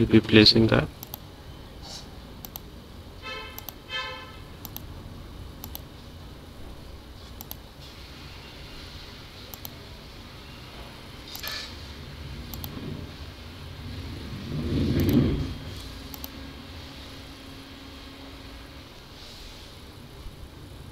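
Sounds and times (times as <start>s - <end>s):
steady low hum: 0.0s - 20.9s
computer mouse clicking: 1.0s - 1.2s, 2.4s - 2.6s, 3.6s - 3.8s, 4.6s - 4.9s, 5.6s - 5.9s, 7.3s - 7.6s, 9.5s - 9.8s, 11.3s - 11.7s, 12.5s - 12.8s, 15.0s - 15.2s, 16.1s - 16.4s.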